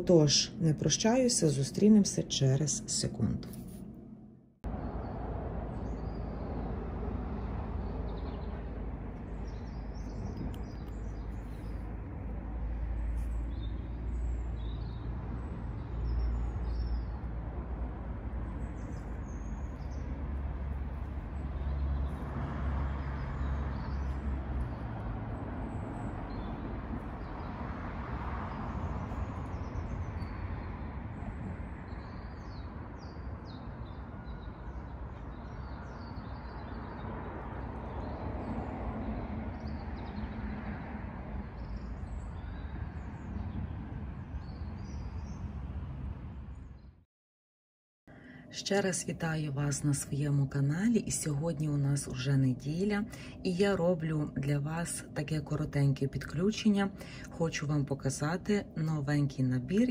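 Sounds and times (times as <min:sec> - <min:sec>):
small birds chirping: 0:07.4 - 0:12.3, 0:12.9 - 0:17.4, 0:18.4 - 0:40.6, 0:41.4 - 0:45.5.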